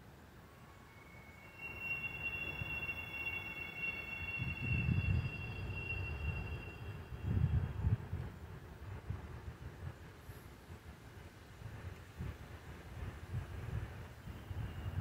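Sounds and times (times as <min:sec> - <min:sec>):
high-pitched multi-tone squeal: 0:00.4 - 0:08.2, 0:14.2 - 0:15.0.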